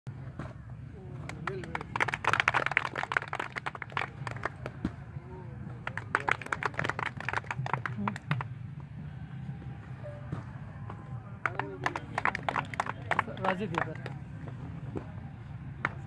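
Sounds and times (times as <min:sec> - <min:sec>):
crowd voices: 0:00.2 - 0:16.0
people clapping: 0:01.0 - 0:08.8, 0:10.8 - 0:15.1, 0:15.7 - 0:16.0.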